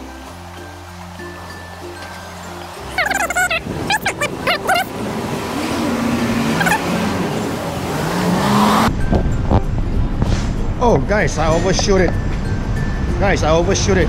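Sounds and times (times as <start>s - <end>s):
car passing close by: 4.9s - 9.1s.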